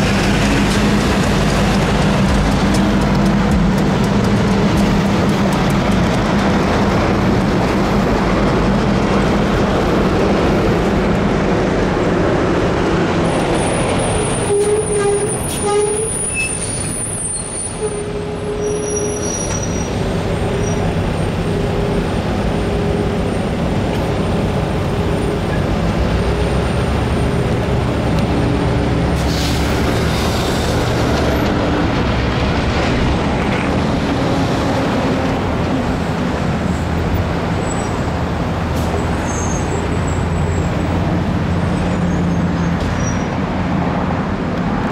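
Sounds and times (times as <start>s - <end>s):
locomotive diesel engine running: 0.0s - 16.1s.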